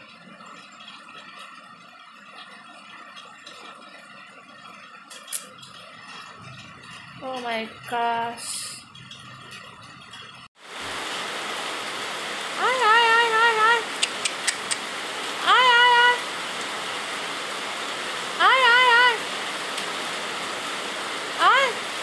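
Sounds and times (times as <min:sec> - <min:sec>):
heavy rain: 0:08.9 - 0:22.0
sharp clicks: 0:13.9 - 0:14.9.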